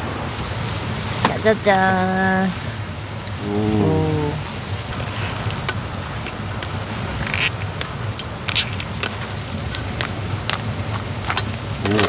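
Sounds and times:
food sizzling on griddle: 0:00.0 - 0:12.0
low hum: 0:03.2 - 0:05.0.

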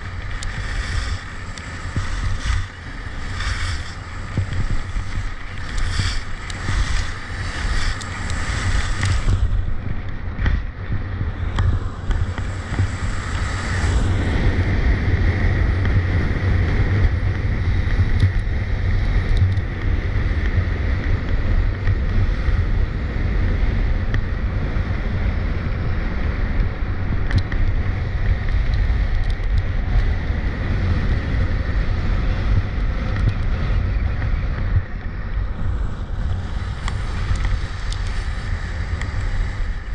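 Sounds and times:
skis scraping icy snow: 0:00.0 - 0:19.4, 0:29.9 - 0:39.9
wind buffeting microphone: 0:00.0 - 0:39.9.

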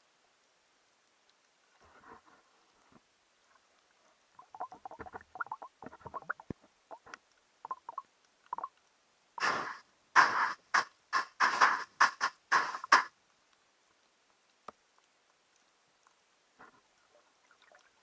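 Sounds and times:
bursts of water and bubbles: 0:04.4 - 0:08.0
underwater crackling and gurgling: 0:04.4 - 0:08.8.

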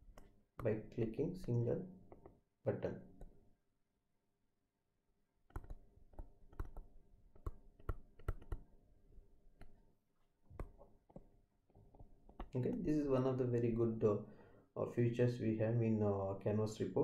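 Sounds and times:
stylus tapping on tablet screen: 0:00.0 - 0:02.4, 0:05.5 - 0:08.8, 0:09.5 - 0:09.8, 0:10.5 - 0:12.9.

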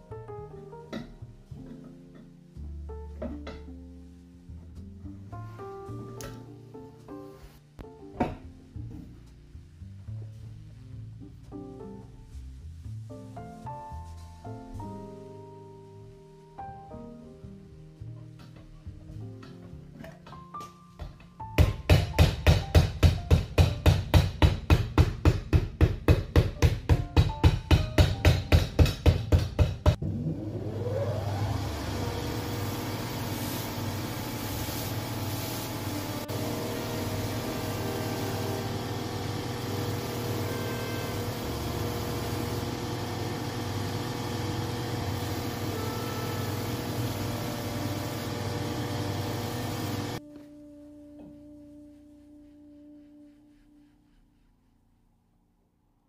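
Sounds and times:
sanding machine motor humming: 0:30.4 - 0:50.2
wheels sanding leather: 0:31.0 - 0:50.2.

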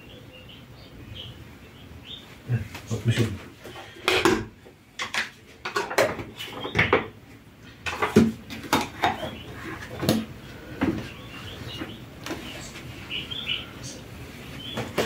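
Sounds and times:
dishes clinking and knocking: 0:04.0 - 0:07.1.

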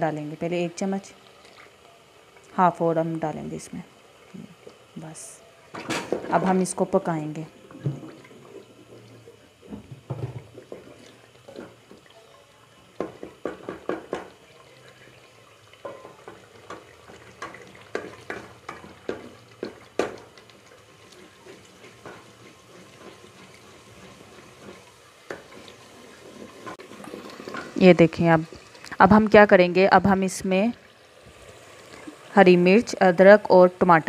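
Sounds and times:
oil sizzling faintly: 0:00.0 - 0:34.0
spoon knocking against pot: 0:13.0 - 0:14.3, 0:15.8 - 0:20.3
wooden spoon scraping a pot: 0:21.0 - 0:27.8.

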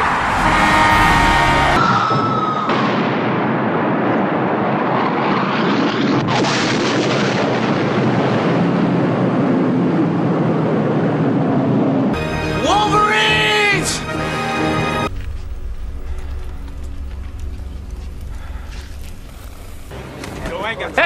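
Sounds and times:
explosion blast rush: 0:00.0 - 0:12.2, 0:15.0 - 0:21.0
sharp crack: 0:15.1 - 0:20.8.

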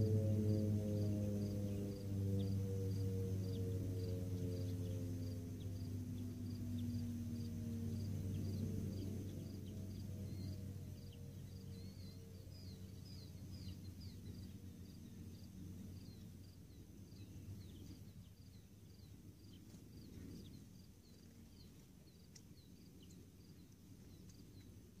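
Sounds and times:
distant siren: 0:00.0 - 0:09.2
low steady hum: 0:00.0 - 0:25.0.

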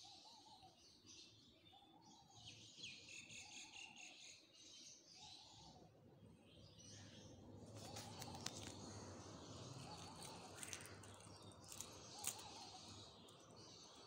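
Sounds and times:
birds chirping: 0:05.2 - 0:14.0.

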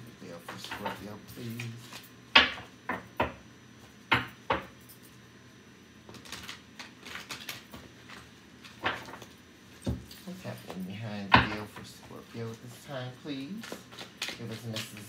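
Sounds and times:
hands handling cards: 0:06.1 - 0:09.3, 0:13.4 - 0:15.0.

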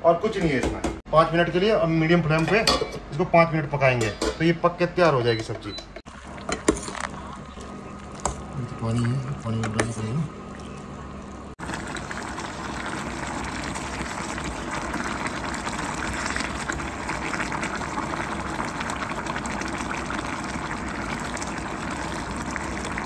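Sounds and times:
curry bubbling in a pot: 0:06.1 - 0:23.0.

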